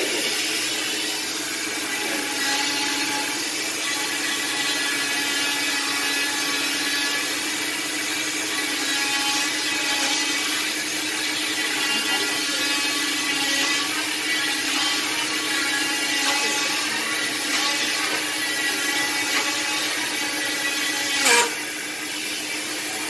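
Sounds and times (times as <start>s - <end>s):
cast saw motor whine: 0.0s - 23.0s
saw blade rasping on cast: 8.6s - 21.9s.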